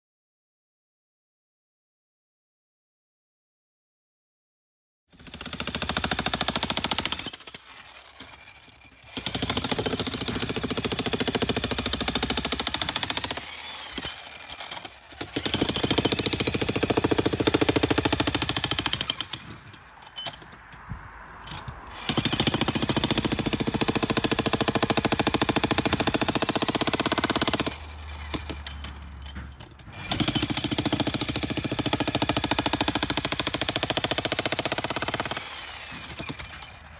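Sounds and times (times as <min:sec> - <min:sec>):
breaker hammer pounding concrete: 0:09.1 - 0:19.8, 0:22.1 - 0:36.8.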